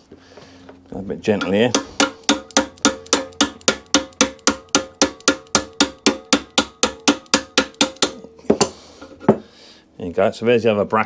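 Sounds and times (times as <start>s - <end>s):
hammer tapping on metal: 1.4s - 9.4s.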